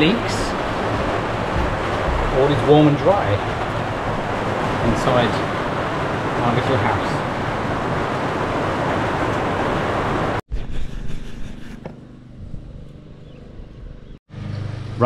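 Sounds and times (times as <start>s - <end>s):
rain on a metal roof: 0.0s - 10.4s.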